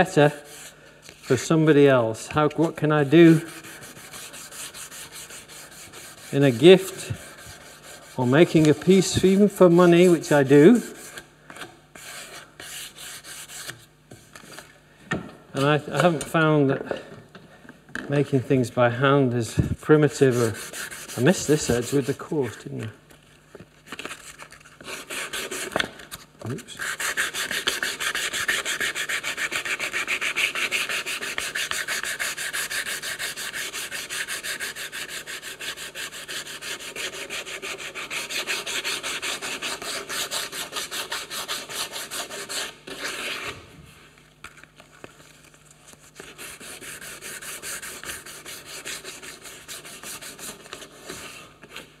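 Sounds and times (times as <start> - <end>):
sandpaper rubbing on wood: 2.6 - 11.2, 12.0 - 13.8, 20.1 - 22.6, 24.8 - 25.8, 26.7 - 43.6, 45.9 - 51.4.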